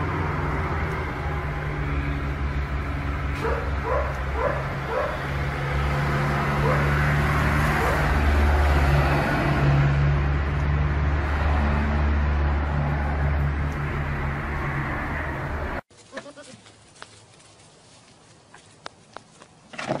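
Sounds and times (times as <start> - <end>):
low vehicle drone: 0.0 - 15.9
dog yipping: 3.4 - 5.2.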